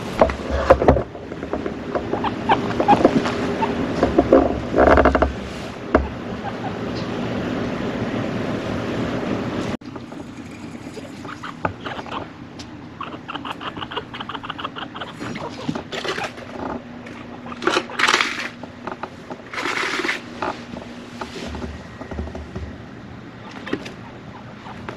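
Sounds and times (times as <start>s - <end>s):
chinchilla squeaking: 2.0s - 5.0s, 6.0s - 7.1s, 10.5s - 20.1s, 23.4s - 24.9s
chinchilla hissing: 10.7s - 12.3s, 13.0s - 16.4s.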